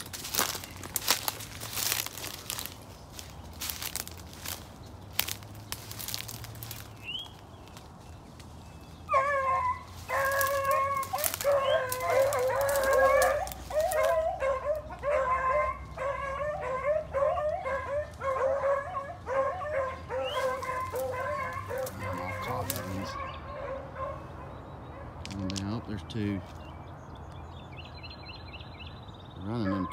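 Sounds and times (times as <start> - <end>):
footsteps crunching dry leaves: 0.0 - 19.4, 20.1 - 23.2
dogs baying: 9.0 - 25.3, 29.4 - 29.9.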